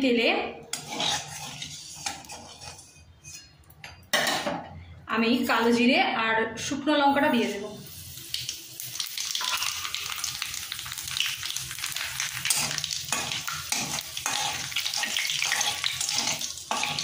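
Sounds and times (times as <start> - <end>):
spices sizzling in hot oil: 0.7 - 2.9, 7.3 - 17.0
spatula scraping through oil: 0.7 - 3.6, 10.2 - 17.0.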